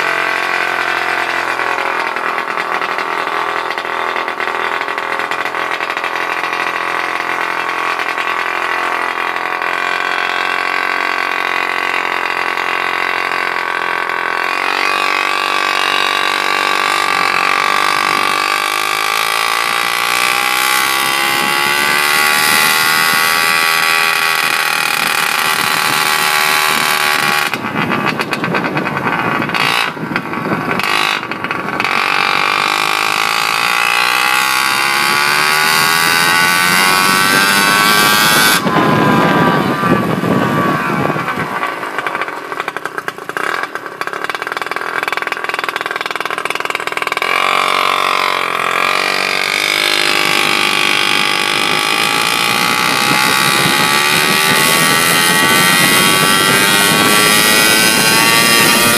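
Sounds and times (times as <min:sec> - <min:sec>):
scooter engine running: 0:00.0 - 0:58.9
wind buffeting microphone: 0:20.6 - 0:31.9, 0:35.0 - 0:42.8, 0:49.3 - 0:58.9.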